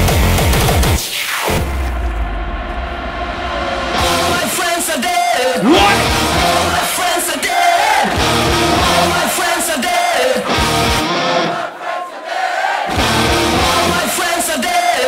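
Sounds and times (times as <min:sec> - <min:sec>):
fast heavy dance beat: 0:05.6 - 0:06.1
shouted vocal samples: 0:05.6 - 0:06.2.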